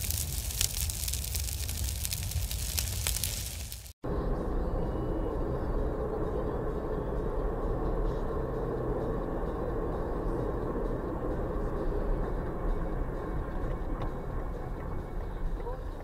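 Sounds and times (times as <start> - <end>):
car road and engine noise: 4.0 - 16.0.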